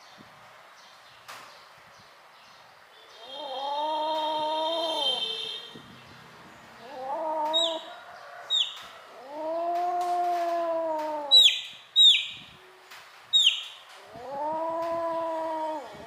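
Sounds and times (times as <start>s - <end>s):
kitten yowling: 3.3s - 5.2s, 6.8s - 7.9s, 8.5s - 12.2s, 13.4s - 16.0s
chick cheeping: 6.9s - 8.8s, 11.3s - 12.4s, 13.4s - 13.7s.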